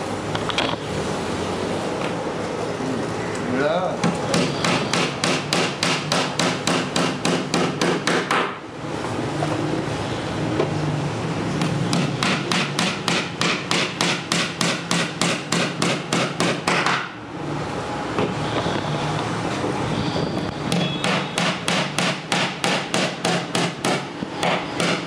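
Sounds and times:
hammer tapping nails: 4.3s - 8.6s, 11.9s - 17.1s.

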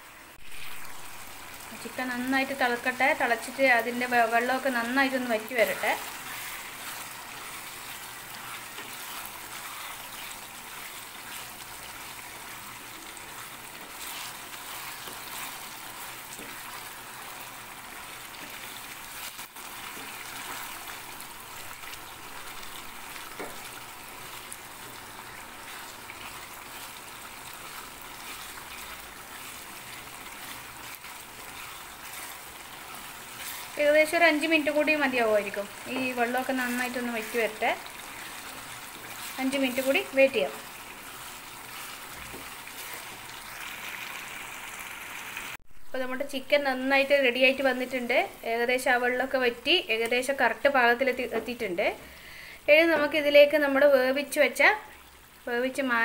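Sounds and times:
curry bubbling and sizzling: 0.0s - 45.7s, 46.5s - 56.0s.

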